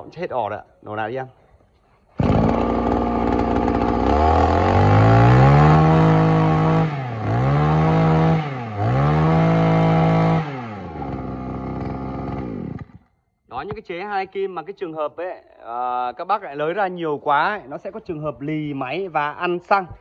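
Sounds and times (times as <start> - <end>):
brush cutter engine revving: 2.2 - 13.1.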